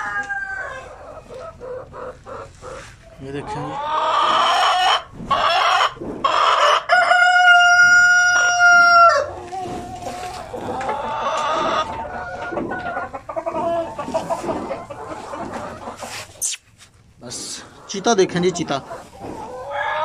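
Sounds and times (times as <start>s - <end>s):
rooster crowing: 0.0s - 0.9s, 6.6s - 9.5s
hens clucking: 0.0s - 16.6s, 17.2s - 20.0s.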